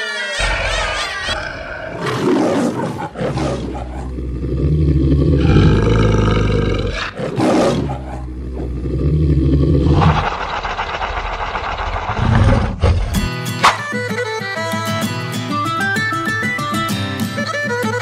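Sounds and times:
children shrieking and laughing: 0:00.0 - 0:01.6
deep monster roaring: 0:00.4 - 0:13.3.

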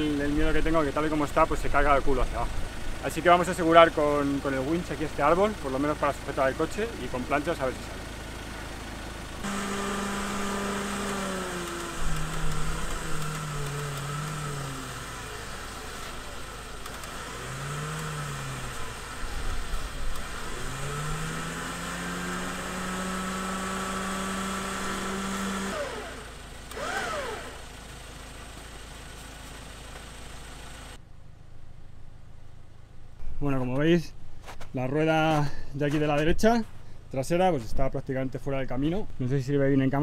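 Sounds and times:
short rising and falling whine: 0:09.4 - 0:27.7
winch motor whine: 0:09.4 - 0:28.7.

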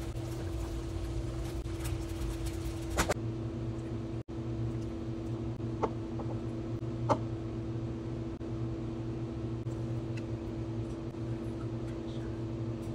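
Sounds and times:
steady mechanical hum: 0:00.0 - 0:12.9.

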